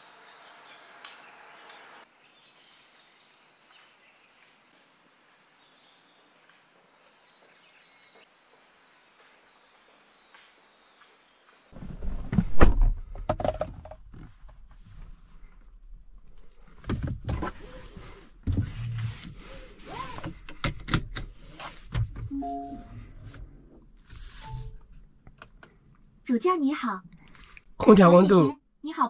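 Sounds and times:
thumps and clicks in car cabin: 0:16.7 - 0:17.8, 0:20.0 - 0:22.3
short beeps: 0:22.3 - 0:23.0.

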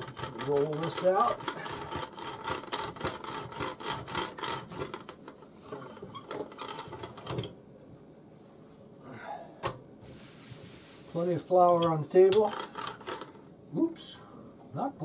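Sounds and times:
rolling pin rubbing dough: 0:00.0 - 0:07.5.

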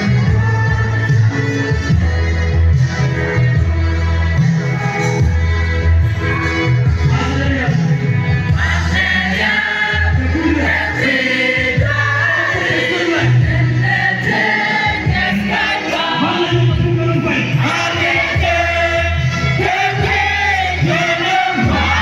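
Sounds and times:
low bass line: 0:00.0 - 0:15.6, 0:16.2 - 0:22.0
choir singing gospel: 0:08.4 - 0:22.0.

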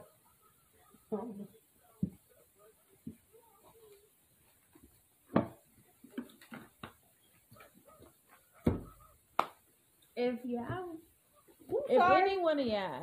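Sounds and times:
faint rustling: 0:00.0 - 0:13.0
sharp knocks: 0:05.3 - 0:05.6
dull thump: 0:05.3 - 0:06.9, 0:08.6 - 0:09.0.

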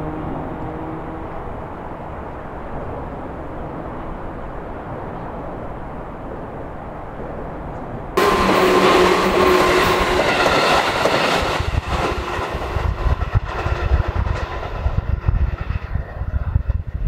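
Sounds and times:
electric train passing: 0:00.0 - 0:17.0
wheels clattering over rail joints: 0:08.2 - 0:14.8.

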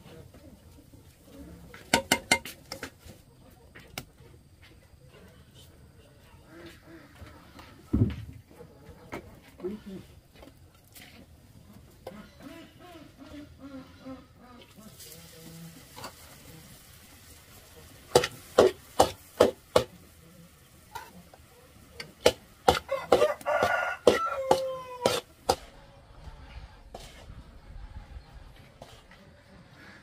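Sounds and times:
rooster crowing: 0:22.9 - 0:25.2.

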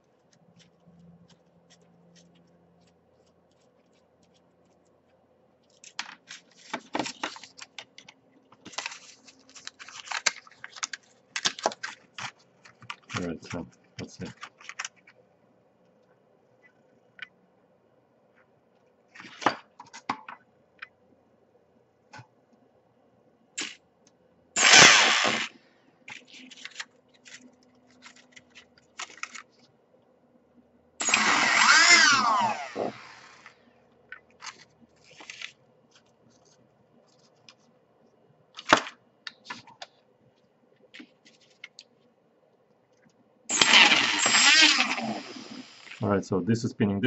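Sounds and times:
electric motor whine: 0:31.0 - 0:33.5, 0:43.5 - 0:46.0.

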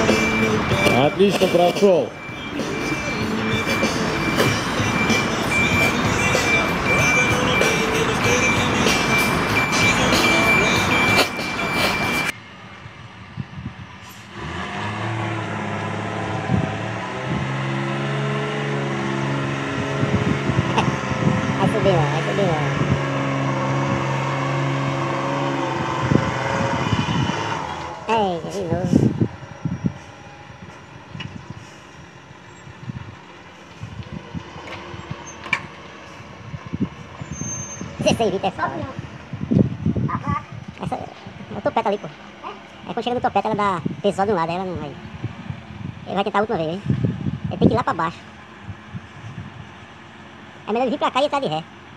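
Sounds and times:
truck reversing beeper: 0:00.0 - 0:12.4, 0:16.2 - 0:32.7, 0:37.2 - 0:38.2
truck diesel engine under load: 0:00.0 - 0:51.9.

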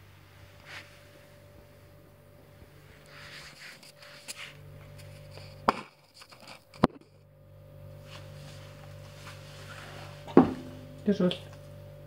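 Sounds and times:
steady low hum: 0:00.0 - 0:12.0
hard knocks on tiled floor: 0:10.4 - 0:10.7.

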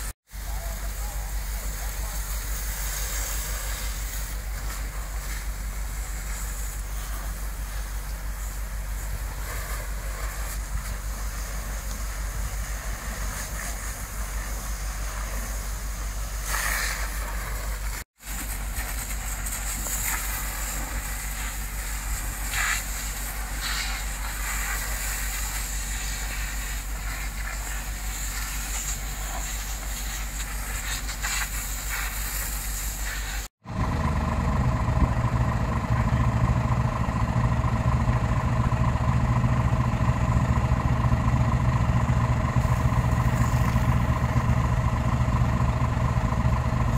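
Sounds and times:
fire hoses hissing: 0:00.0 - 0:33.6, 0:42.5 - 0:45.0
burning roof crackling: 0:00.0 - 0:46.9
diesel engine and water pump: 0:00.0 - 0:46.9
low engine hum: 0:33.6 - 0:46.9.

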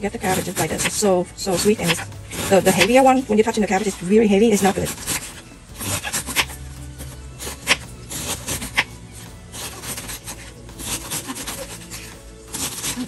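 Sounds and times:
knife slicing cabbage: 0:00.2 - 0:03.2, 0:03.8 - 0:13.0.

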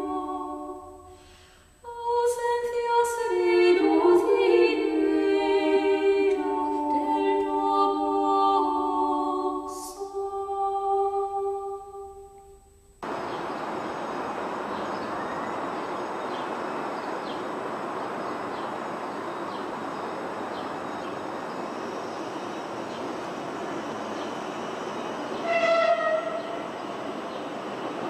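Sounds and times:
steady rumbling noise: 0:04.8 - 0:28.0
faint chirps: 0:11.8 - 0:28.0
short horn-like tone: 0:25.4 - 0:26.7.

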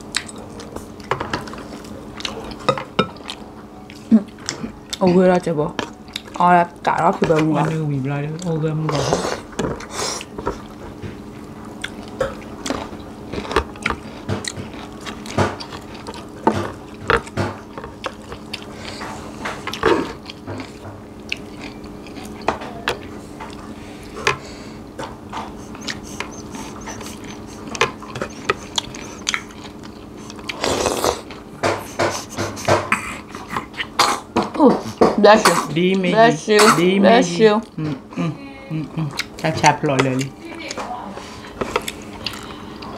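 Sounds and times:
low steady hum: 0:00.0 - 0:42.9
chewing and lip smacks: 0:00.1 - 0:01.1, 0:01.7 - 0:05.0, 0:05.8 - 0:06.4, 0:11.8 - 0:16.3, 0:19.6 - 0:22.5, 0:25.4 - 0:31.5, 0:41.6 - 0:42.9.

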